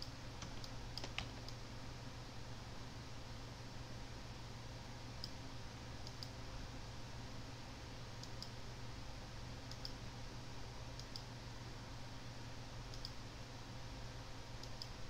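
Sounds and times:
computer mouse clicking: 0.4 - 1.6, 6.0 - 6.4, 8.2 - 8.6, 9.7 - 10.0, 11.0 - 11.3, 12.9 - 13.2, 14.6 - 15.0.

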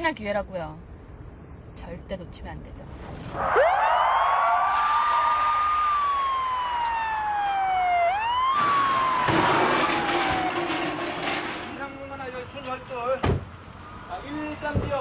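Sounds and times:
police siren wailing: 3.4 - 10.8.

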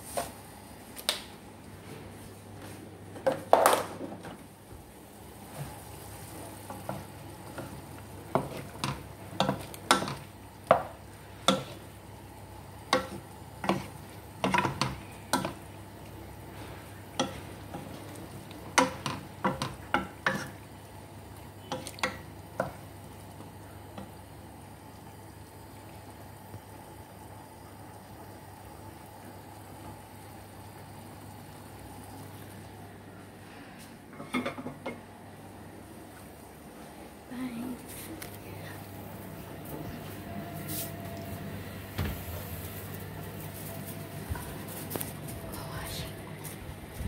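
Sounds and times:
food sizzling in a pan: 5.3 - 26.5.

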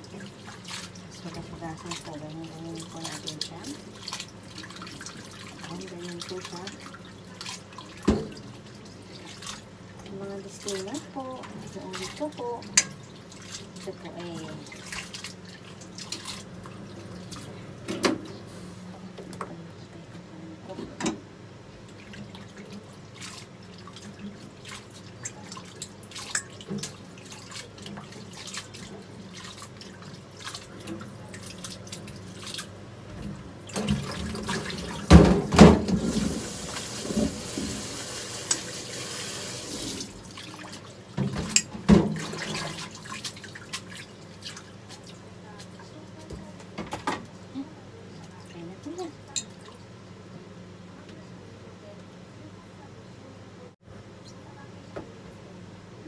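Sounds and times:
containers clattering at sink: 23.9 - 38.7, 39.9 - 44.6
tap running: 33.1 - 40.1.

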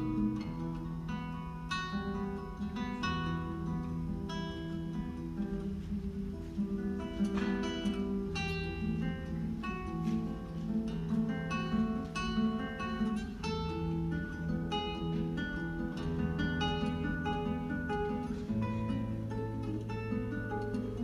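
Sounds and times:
classical guitar fingerstyle: 0.0 - 21.0.

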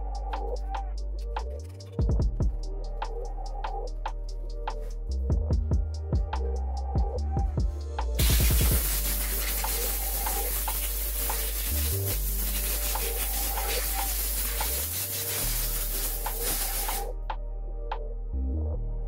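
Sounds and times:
background music with bass: 0.0 - 19.0
compressed air hissing: 8.2 - 17.1.

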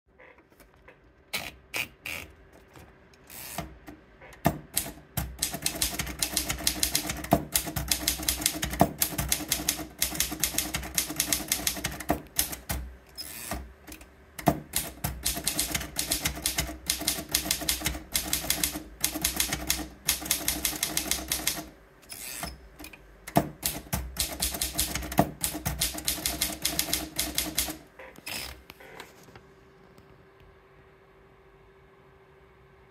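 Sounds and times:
paper feed clicks: 1.4 - 28.7
typewriter keys clacking: 4.7 - 12.9, 13.9 - 21.7, 22.8 - 27.8.

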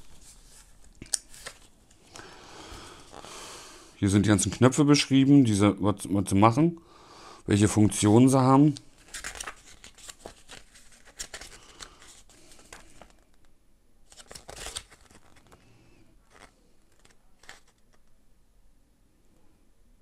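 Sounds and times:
paper pages rustling: 0.0 - 2.1, 2.7 - 3.3, 8.9 - 13.5, 14.1 - 18.1.

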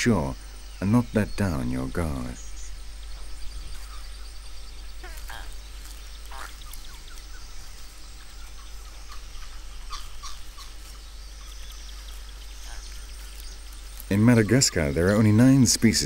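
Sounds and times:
high insect drone: 0.0 - 16.0
short animal calls: 6.3 - 7.1.

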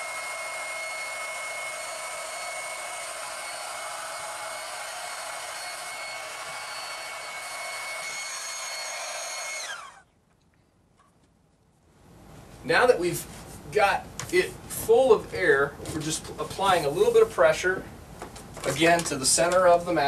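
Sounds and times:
electric air pump whining: 0.0 - 10.0.

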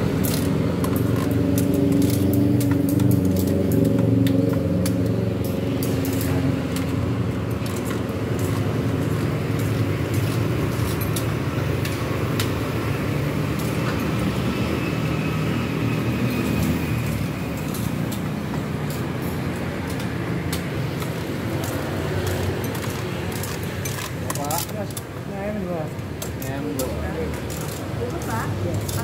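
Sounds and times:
traffic rumble: 0.0 - 29.0
vehicle engine: 0.0 - 29.0
metal tongs clinking on pot: 26.2 - 29.0.

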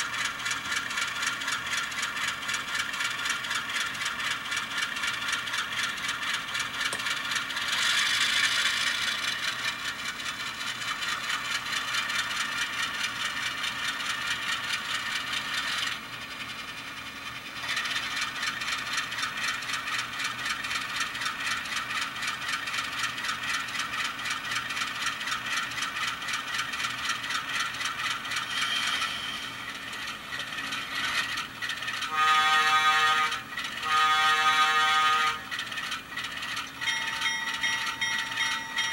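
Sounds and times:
diesel engine sound through tiny speaker: 0.0 - 36.4
locomotive horn blasts: 32.1 - 35.5.

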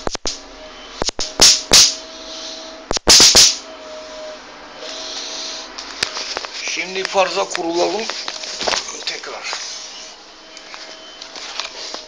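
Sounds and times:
electric fly-swatter zapping: 1.0 - 2.0, 2.9 - 3.6.

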